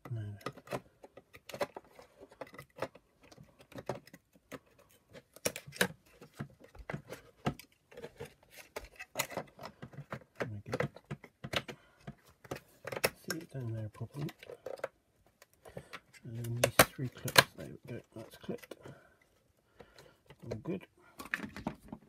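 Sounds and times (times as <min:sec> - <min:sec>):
plastic parts clicking and tapping: 0:00.0 - 0:22.0.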